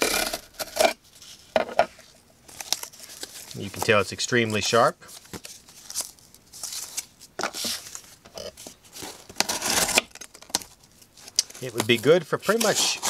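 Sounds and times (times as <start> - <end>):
knife slicing cardboard: 9.4 - 10.1, 11.8 - 13.0.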